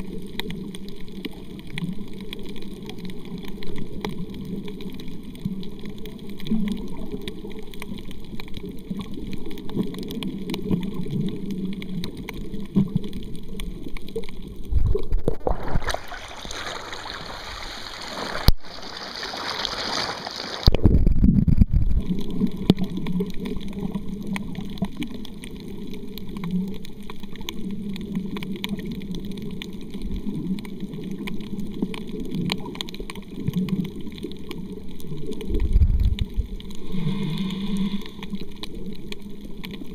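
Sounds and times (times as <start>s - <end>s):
muffled underwater rumble: 0.0s - 19.1s, 20.6s - 39.9s
water splashing and sloshing: 0.0s - 39.9s.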